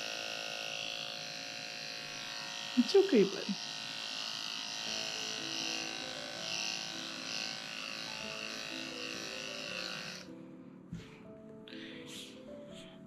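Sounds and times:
electric clippers buzzing: 0.0 - 10.4.

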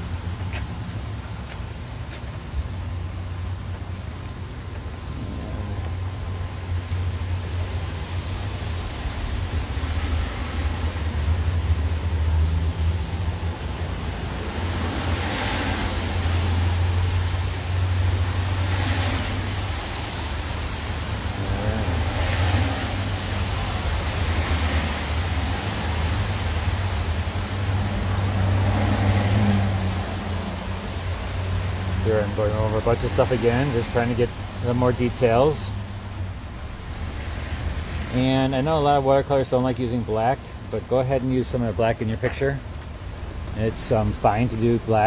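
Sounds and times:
low traffic rumble: 0.0 - 45.0
cars swishing past on wet road: 4.9 - 45.0.

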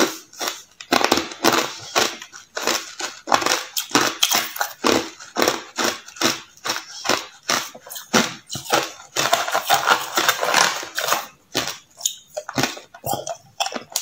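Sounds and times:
ice crunching between teeth: 0.0 - 14.0.

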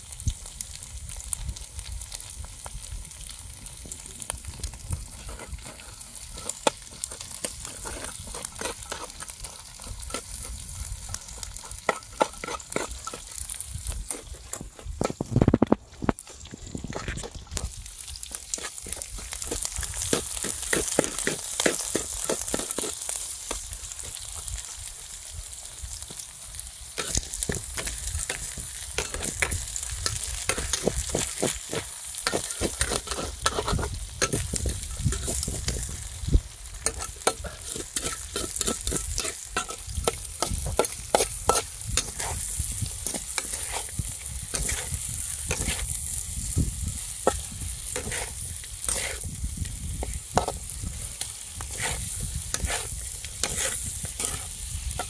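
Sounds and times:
meat sizzling: 0.0 - 55.0.

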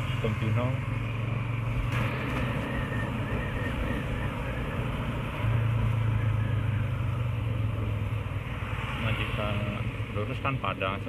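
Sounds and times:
motorcycle engine droning: 0.0 - 8.2.

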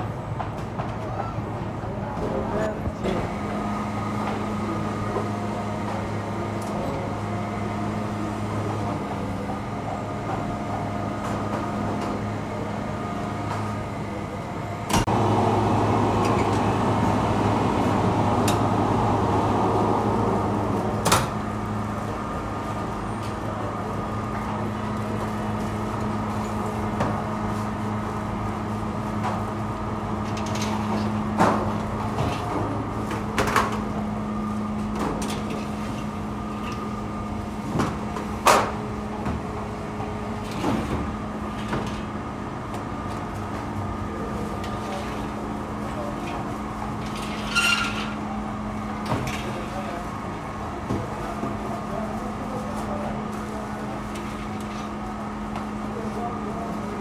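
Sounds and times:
machinery humming: 0.0 - 47.4
loud rushing noise: 15.0 - 21.6.

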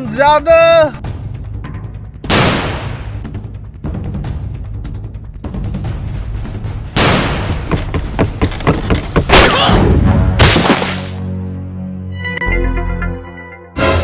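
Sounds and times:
background music: 0.0 - 14.0
gunshots: 2.3 - 3.1, 7.0 - 7.6.

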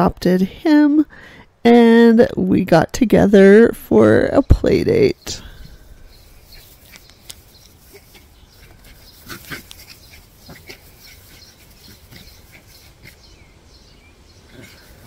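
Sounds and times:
faint dog vocal sounds: 6.2 - 13.6, 14.3 - 15.0.

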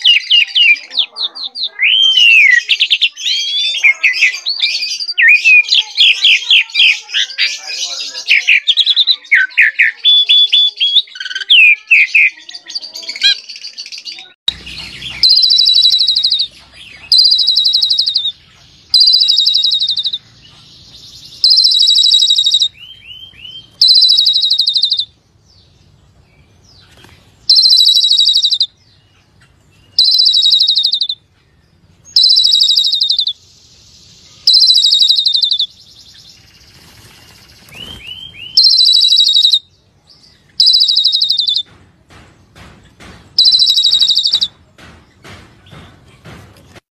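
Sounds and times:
rattling bird phrase: 0.0 - 20.2, 21.2 - 22.8, 23.6 - 25.1, 27.4 - 28.7, 29.9 - 31.2, 32.1 - 33.4, 34.4 - 39.6, 40.5 - 41.8, 42.5 - 44.6
myna bird singing: 0.0 - 46.8
varied whistled bird notes: 1.6 - 7.4, 13.6 - 25.7, 27.5 - 29.0, 29.8 - 31.2, 32.0 - 41.7, 43.4 - 44.6
short rising bird chirps: 14.6 - 16.5, 17.1 - 20.2, 21.1 - 25.1, 27.5 - 28.7, 29.9 - 31.2, 32.1 - 39.6, 40.6 - 41.6, 43.4 - 44.5.

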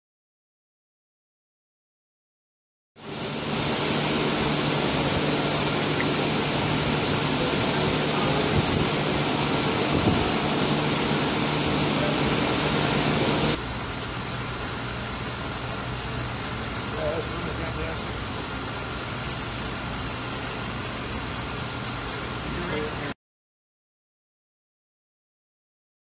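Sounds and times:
low steady hum: 3.0 - 23.1
water running down waterfall: 3.0 - 23.1.

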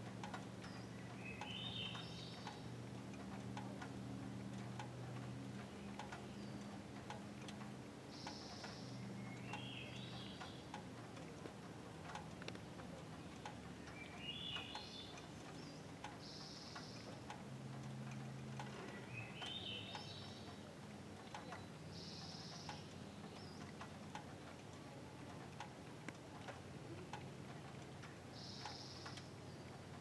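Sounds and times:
faint clicks: 0.0 - 30.0
birdsong trills: 0.3 - 3.7, 4.5 - 6.9, 8.1 - 10.9, 12.6 - 17.4, 18.0 - 24.2, 27.1 - 30.0.

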